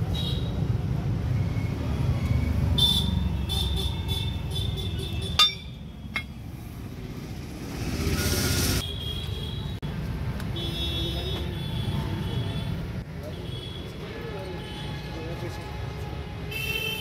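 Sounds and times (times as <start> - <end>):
motor vehicle rumbling: 0.6 - 8.8.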